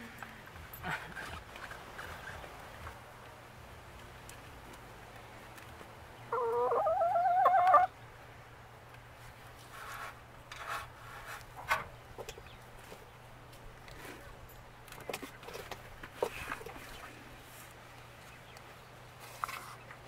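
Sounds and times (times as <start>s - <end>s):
hen calling: 6.3s - 7.9s.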